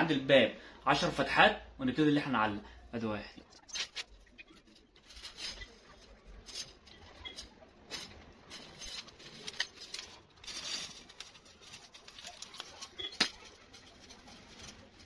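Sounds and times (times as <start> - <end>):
wood scraping and clicking on cage wires: 3.6 - 15.0.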